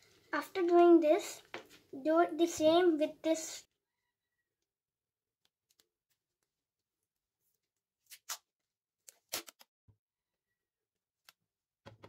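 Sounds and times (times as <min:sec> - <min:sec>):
packing tape pulled off roll: 0:08.1 - 0:08.5, 0:09.1 - 0:09.7.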